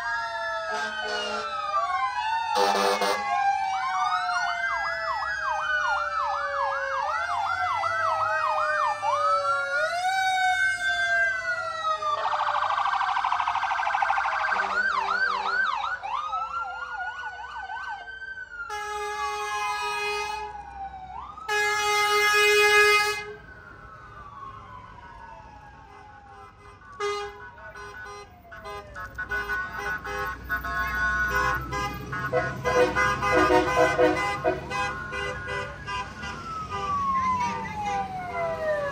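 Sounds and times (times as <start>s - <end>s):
fire truck sirens wailing: 0.0s - 38.9s
air horn blasts: 2.6s - 3.2s, 18.7s - 20.5s, 21.5s - 23.4s, 25.9s - 38.0s.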